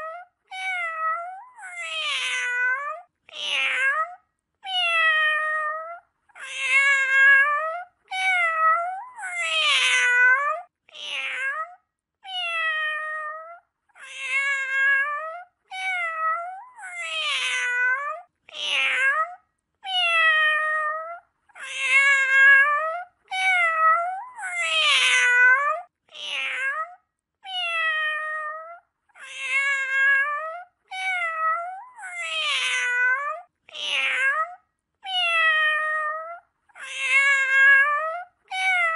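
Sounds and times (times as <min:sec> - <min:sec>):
cat meowing: 0:00.0 - 0:38.9.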